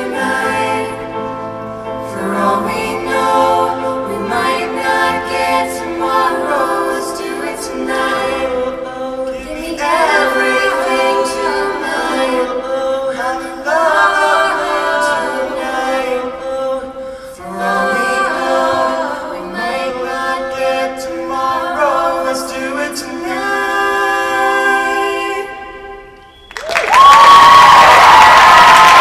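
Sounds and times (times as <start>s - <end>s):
choir singing unaccompanied: 0.0s - 26.0s.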